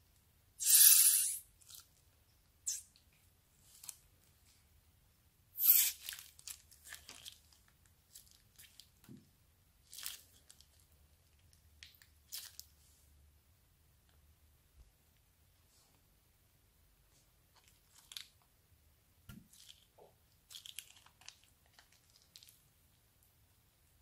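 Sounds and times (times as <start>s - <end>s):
wet slime squishing: 5.7s - 9.1s, 9.8s - 12.8s, 17.5s - 18.5s, 19.4s - 23.0s
plastic bag crinkling: 5.9s - 9.0s, 9.8s - 10.9s, 17.6s - 18.4s, 19.5s - 22.6s.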